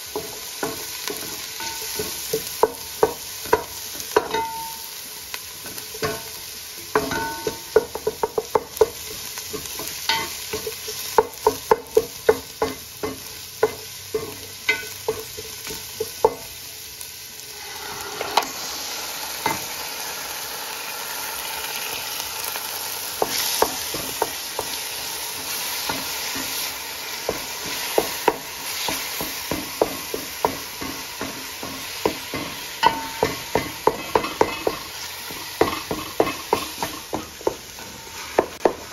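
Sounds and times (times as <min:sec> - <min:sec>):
food sizzling in oil: 0:00.0 - 0:38.9
wooden spoon knocking on pot: 0:06.9 - 0:16.4, 0:23.2 - 0:24.8, 0:27.2 - 0:37.7.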